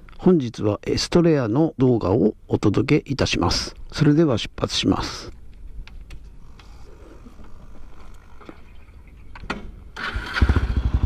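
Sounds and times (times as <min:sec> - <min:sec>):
motorcycle engine idling: 0:10.0 - 0:11.0.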